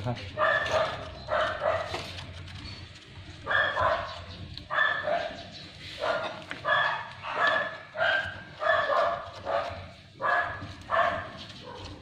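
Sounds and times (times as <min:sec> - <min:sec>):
dog barking: 0:00.3 - 0:02.2, 0:03.4 - 0:12.0.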